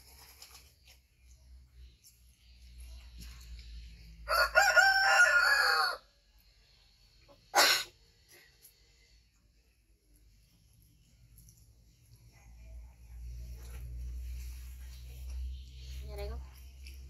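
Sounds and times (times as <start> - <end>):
rooster crowing: 4.2 - 6.2.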